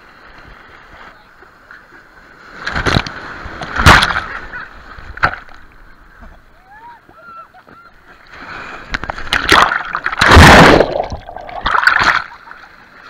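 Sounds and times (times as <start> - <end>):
surf splashing over camera: 8.3 - 13.0.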